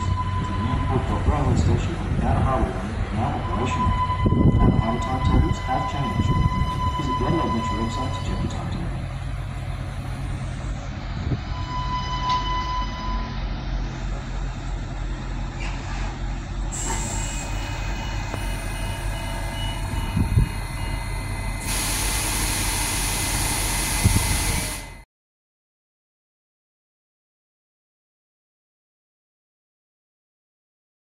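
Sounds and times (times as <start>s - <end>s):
diesel railcar engine drone: 0.0s - 25.0s
short high beep: 3.4s - 8.6s, 11.5s - 13.4s, 16.8s - 21.9s
loud steady hiss: 21.6s - 24.8s.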